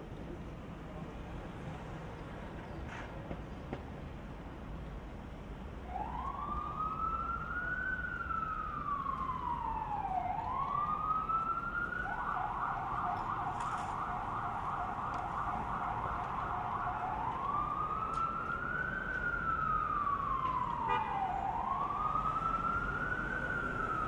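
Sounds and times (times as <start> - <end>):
emergency vehicle siren: 5.6 - 24.0.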